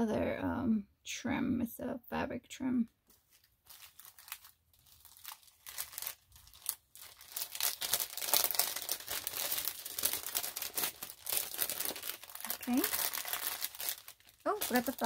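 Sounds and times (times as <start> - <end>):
plastic bags crinkling: 3.0 - 15.0.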